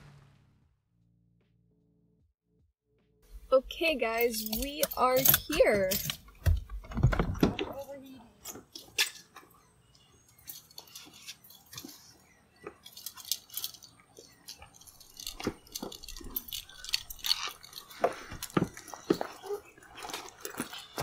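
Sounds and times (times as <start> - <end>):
clothes and backpacks rustling: 10.3 - 21.0.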